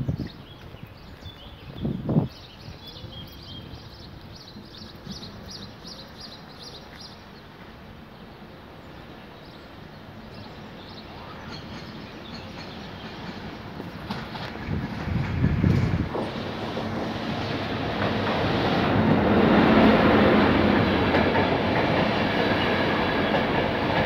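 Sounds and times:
small birds chirping: 0.0s - 14.1s
train rumble: 0.0s - 24.0s.

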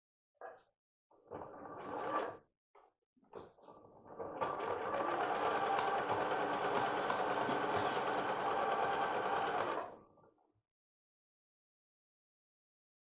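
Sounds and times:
sewing machine stitching: 4.1s - 10.0s.

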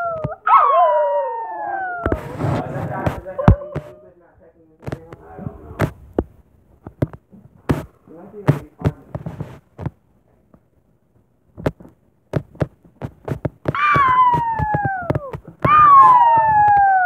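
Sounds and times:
small dog howling: 0.0s - 2.4s, 3.4s - 4.1s, 13.7s - 17.0s
faint low murmurs: 0.0s - 10.8s.

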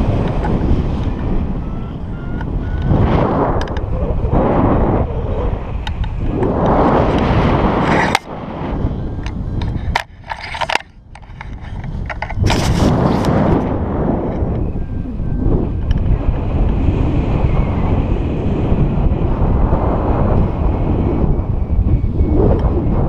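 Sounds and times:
wind buffeting microphone: 0.0s - 23.0s
camera pole clicks and knocks: 9.2s - 13.3s.

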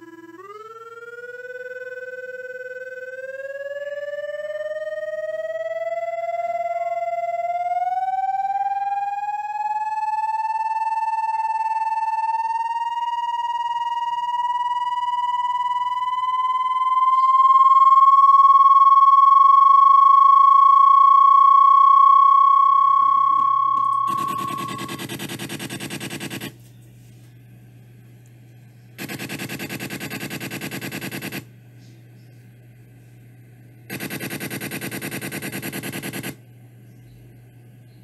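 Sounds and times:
electronic whistle-like tone: 0.0s - 26.5s
harsh pulsing buzz: 22.6s - 26.6s, 28.8s - 31.6s, 32.6s - 36.4s.

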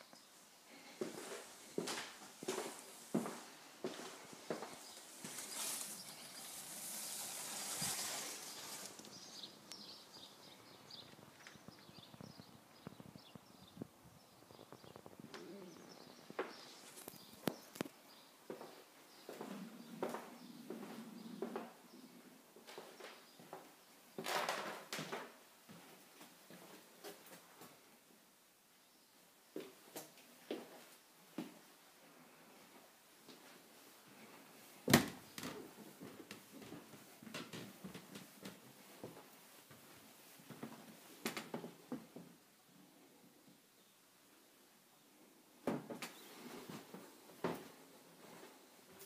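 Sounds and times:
footsteps: 0.7s - 15.5s
footsteps on carpeted stairs: 1.0s - 5.5s
small birds chirping: 3.4s - 24.0s.

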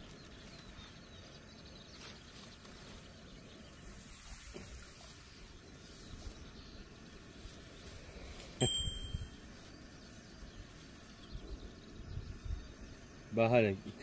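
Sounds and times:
metal bite bell ding: 8.6s - 9.4s.

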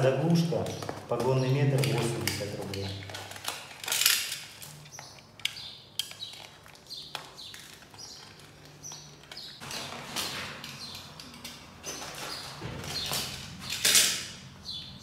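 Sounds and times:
plastic film crinkling and rustling: 0.0s - 10.7s.

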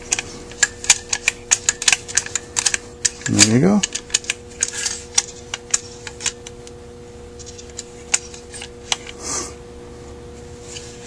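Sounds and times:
steady hum: 0.0s - 11.0s
metal parts clicking on workbench: 0.1s - 6.5s.

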